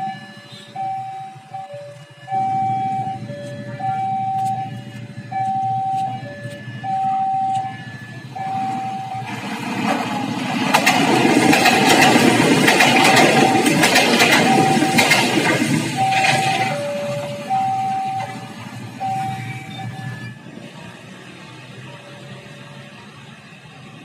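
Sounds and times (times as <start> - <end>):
level crossing two-tone alarm: 0.0 - 9.4, 11.2 - 20.4
diesel railcar passing: 0.0 - 24.0
train wheels clicking: 9.2 - 18.8.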